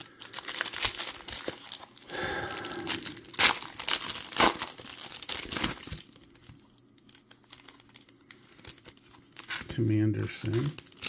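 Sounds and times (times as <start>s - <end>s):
foil wrapper crinkling and tearing: 0.0s - 11.0s.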